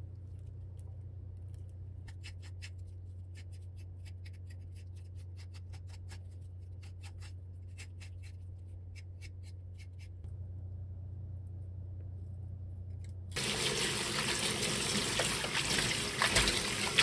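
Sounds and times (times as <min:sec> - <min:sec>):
steady low hum: 0:00.0 - 0:04.2, 0:06.4 - 0:13.6.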